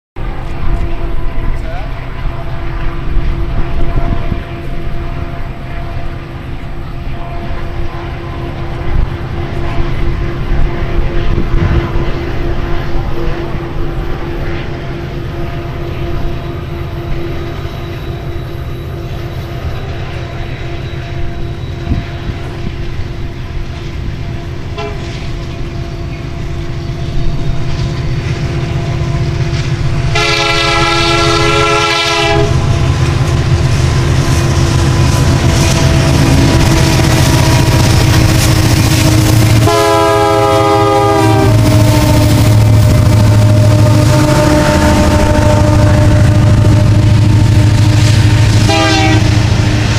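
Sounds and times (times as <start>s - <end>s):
diesel locomotive engine drone: 0.2s - 49.9s
train air horn chord: 24.4s - 25.2s, 30.1s - 32.8s, 35.4s - 49.9s.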